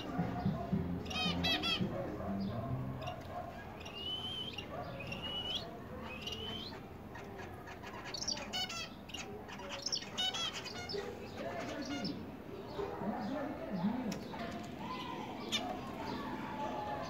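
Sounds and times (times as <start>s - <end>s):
buzzy finch song: 0.0s - 12.3s
finches whistling notes: 3.9s - 6.7s.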